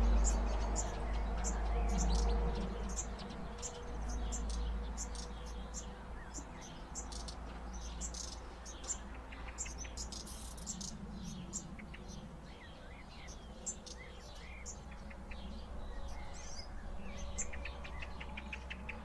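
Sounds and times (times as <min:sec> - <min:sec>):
fledglings begging calls: 0:00.0 - 0:15.2.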